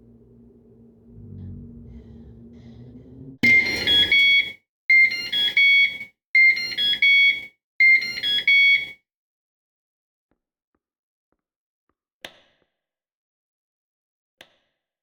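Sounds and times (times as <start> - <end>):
microwave beeping: 3.4 - 9.0.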